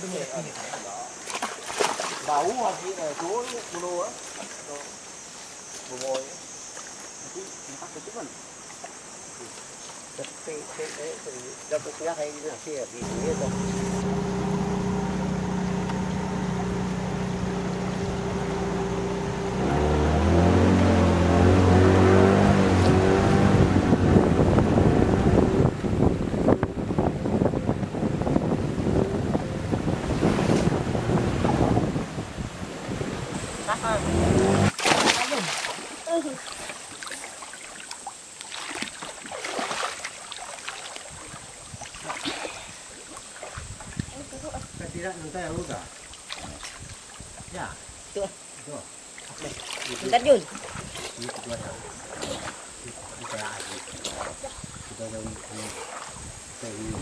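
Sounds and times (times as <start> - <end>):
water splashing: 0.0 - 7.1, 8.0 - 25.9, 28.2 - 44.8, 45.4 - 47.8, 49.0 - 57.0
boat engine humming: 13.0 - 34.8.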